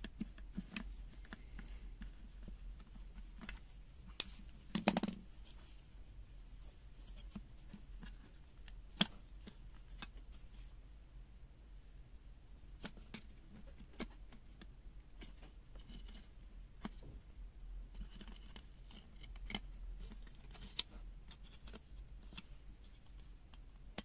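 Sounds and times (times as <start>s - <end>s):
plastic parts clicking and scraping: 0.0s - 5.8s, 12.7s - 24.0s.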